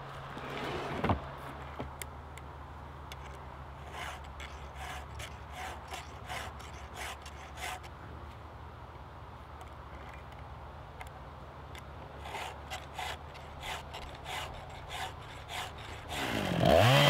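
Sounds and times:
file rasping on chainsaw chain: 3.2s - 7.9s, 12.2s - 17.0s.

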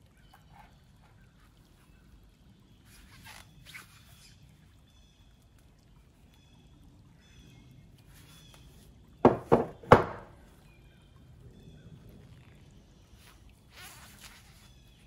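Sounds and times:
metal ingot knocking on wood: 9.2s - 10.3s.

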